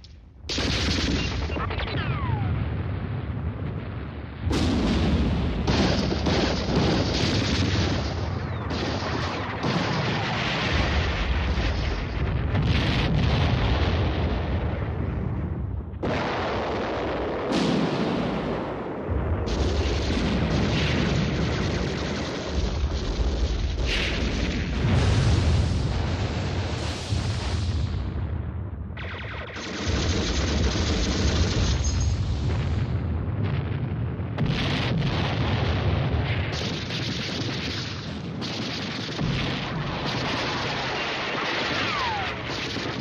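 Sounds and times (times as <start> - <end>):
explosions: 0.0 - 43.0
artillery fire: 0.4 - 43.0
gunfire: 0.5 - 2.2, 4.5 - 11.8, 19.4 - 25.0, 29.0 - 32.3, 34.4 - 43.0.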